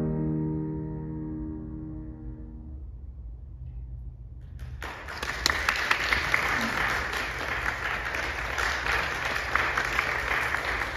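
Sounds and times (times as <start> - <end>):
audience applauding: 4.6 - 10.9.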